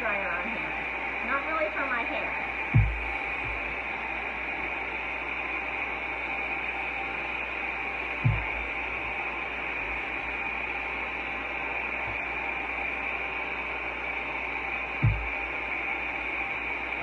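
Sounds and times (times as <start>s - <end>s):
hair dryer blowing: 0.0s - 17.0s
low thump: 2.8s - 3.7s, 8.2s - 8.6s, 15.0s - 15.4s.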